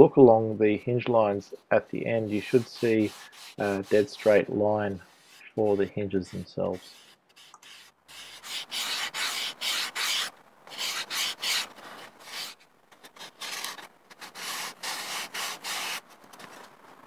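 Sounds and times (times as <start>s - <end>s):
sandpaper sanding foam: 2.1s - 12.6s, 13.2s - 16.0s.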